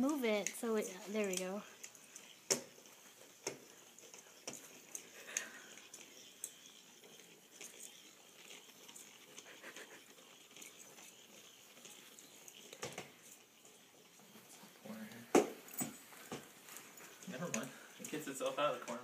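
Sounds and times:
light taps and patter on carpet: 0:14.1 - 0:19.0.

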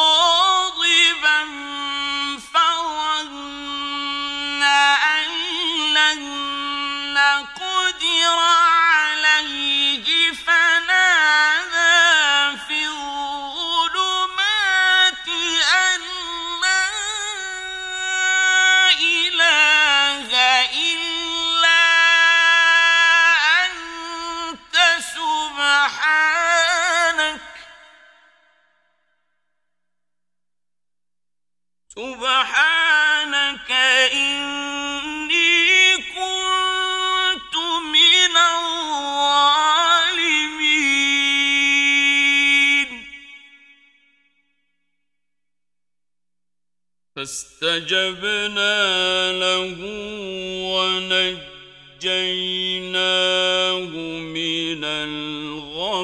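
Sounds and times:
man chanting melodic recitation: 0:00.0 - 0:27.6, 0:47.2 - 0:56.0.

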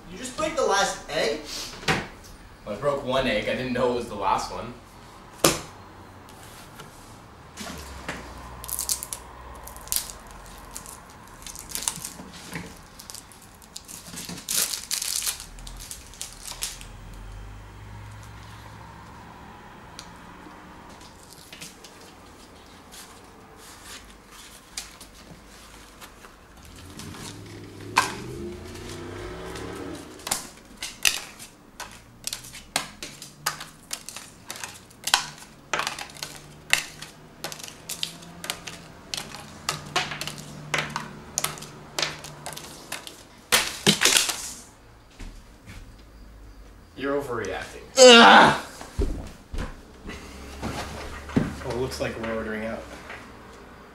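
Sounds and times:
playing cards shuffled and slapped: 0:05.4 - 0:05.7, 0:30.2 - 0:44.6.

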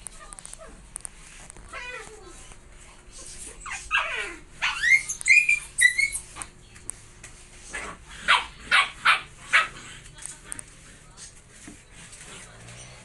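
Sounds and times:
puppy whining: 0:00.0 - 0:00.9, 0:01.5 - 0:06.5
puppy yapping: 0:03.2 - 0:06.4, 0:07.7 - 0:09.8.

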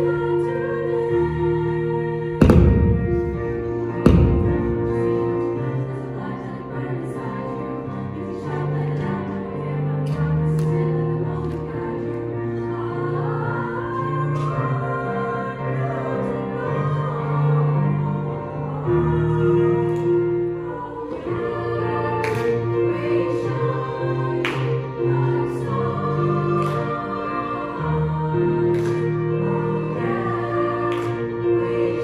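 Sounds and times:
female choir singing: 0:00.0 - 0:32.0
loud thumps: 0:02.4 - 0:04.9.

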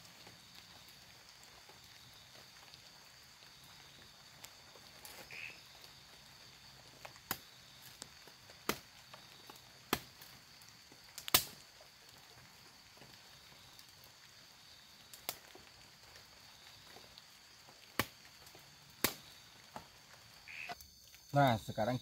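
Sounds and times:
night insects droning: 0:00.0 - 0:22.0
axe chopping firewood: 0:08.6 - 0:08.9, 0:09.8 - 0:10.3, 0:11.2 - 0:11.6, 0:18.0 - 0:18.2, 0:19.0 - 0:19.3.

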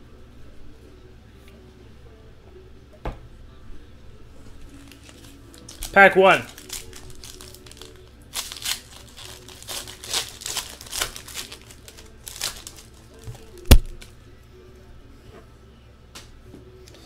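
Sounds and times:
wrapper crinkling and tearing: 0:04.6 - 0:14.1.

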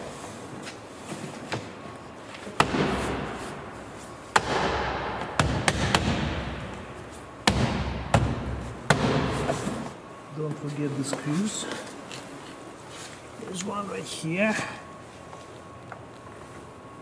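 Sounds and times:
panel thuds and knocks: 0:04.4 - 0:06.6, 0:07.4 - 0:09.5.

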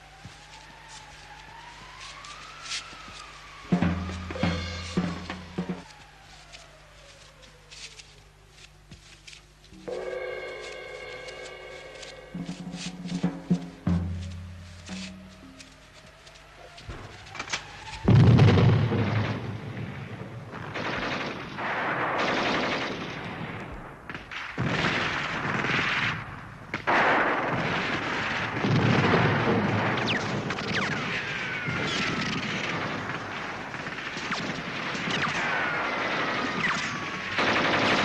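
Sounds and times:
falling whines: 0:00.0 - 0:08.0, 0:09.7 - 0:20.0
loud bang: 0:16.9 - 0:20.1
rifle and submachine gun fire: 0:20.5 - 0:23.6, 0:26.8 - 0:31.3, 0:31.9 - 0:38.0.

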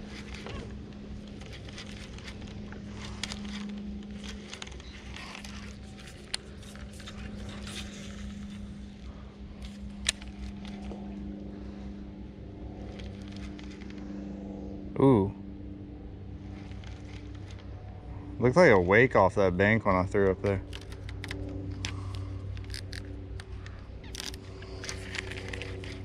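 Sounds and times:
electric motor humming: 0:00.0 - 0:26.0
fishing reel clicks: 0:20.7 - 0:23.1, 0:24.0 - 0:26.0.

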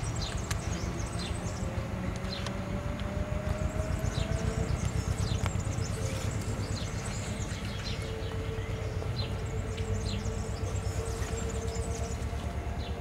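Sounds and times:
birds chirping: 0:00.0 - 0:13.0
steady hum: 0:00.0 - 0:13.0
train rumbling: 0:00.0 - 0:13.0.

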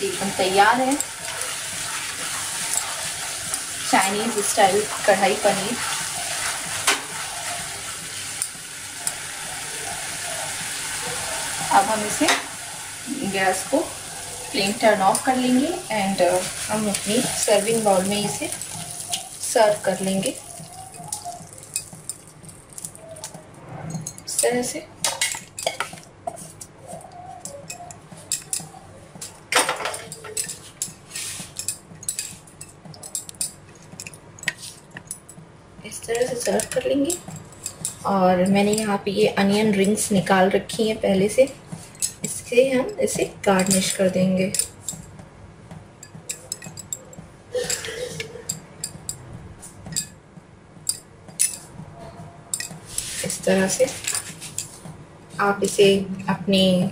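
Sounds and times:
onion rings clinking in ceramic bowl: 0:16.5 - 0:26.0, 0:36.2 - 0:39.0, 0:41.9 - 0:42.4, 0:43.2 - 0:45.1.

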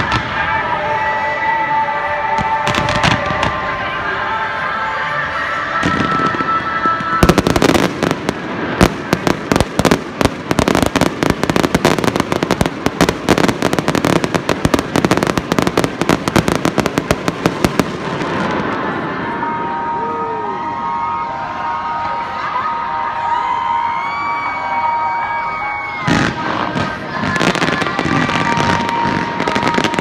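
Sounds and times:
fireworks bangs and crackling: 0:00.0 - 0:04.3, 0:05.7 - 0:20.0, 0:25.6 - 0:30.0.

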